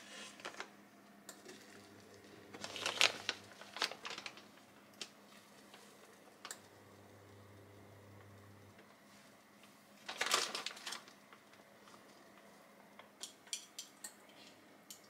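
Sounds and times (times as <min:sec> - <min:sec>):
plastic bag crinkling: 0:01.5 - 0:05.9, 0:10.0 - 0:11.6.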